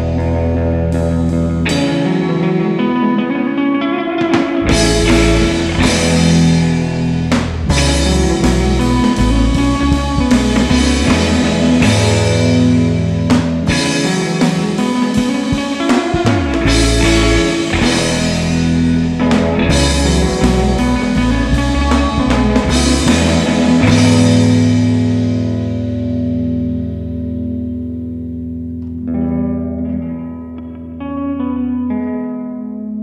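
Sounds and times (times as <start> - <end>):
bass guitar: 0.0 - 33.0
electric guitar: 0.0 - 33.0
drum kit steady beat: 4.2 - 25.8.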